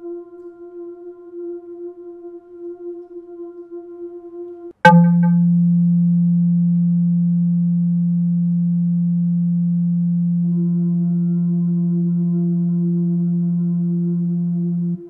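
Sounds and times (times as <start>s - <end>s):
higher ringing tone: 4.8s - 15.0s
low ringing tone: 4.8s - 15.0s.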